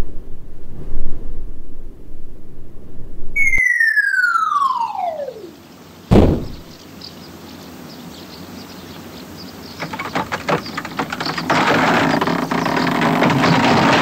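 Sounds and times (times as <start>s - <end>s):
cartoon falling whistle: 3.4s - 6.6s
heavy thud: 6.1s - 6.7s.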